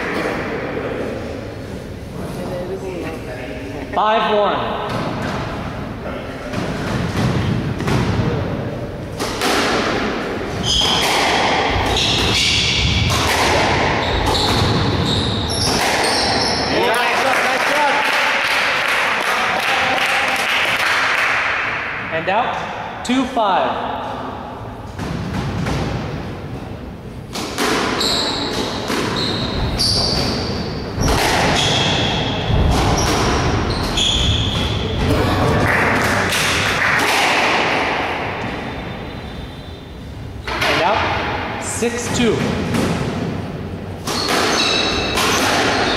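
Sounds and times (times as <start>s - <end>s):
squash ball thuds: 6.5s - 8.4s, 9.1s - 16.4s, 27.3s - 35.1s
shoes squeaking on wooden floor: 14.0s - 16.7s, 28.0s - 35.0s, 44.1s - 45.9s.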